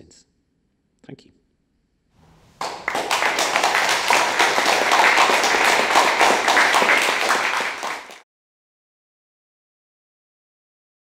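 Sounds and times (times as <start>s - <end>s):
audience applauding: 2.4s - 8.2s.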